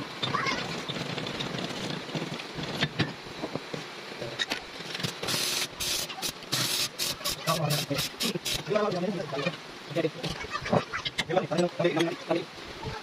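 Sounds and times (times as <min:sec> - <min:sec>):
hissing bursts: 0:04.9 - 0:08.7.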